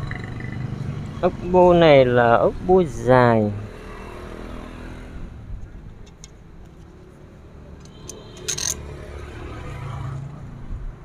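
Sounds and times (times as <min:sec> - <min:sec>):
small metal parts clicking: 0:07.8 - 0:08.8
sharp metallic clink: 0:07.8 - 0:08.9.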